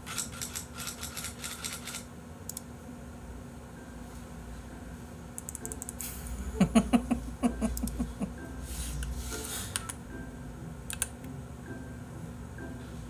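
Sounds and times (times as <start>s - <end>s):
sharp clicks: 5.4s - 6.0s
man laughing: 6.4s - 8.5s.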